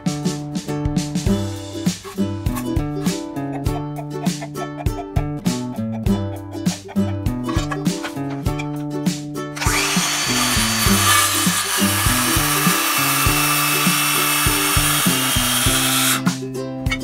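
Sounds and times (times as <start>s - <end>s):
circular saw cutting wood: 6.6s - 8.8s, 9.6s - 16.4s.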